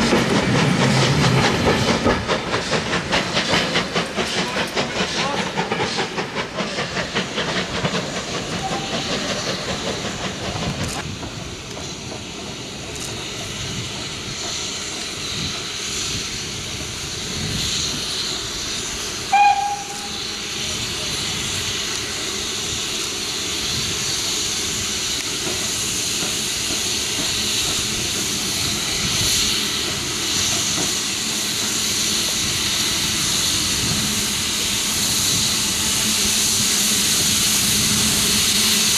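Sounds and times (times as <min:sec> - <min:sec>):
steam locomotive hissing: 0:00.0 - 0:38.9
train wheels clattering: 0:00.0 - 0:38.9
steam whistle blast: 0:19.3 - 0:20.4.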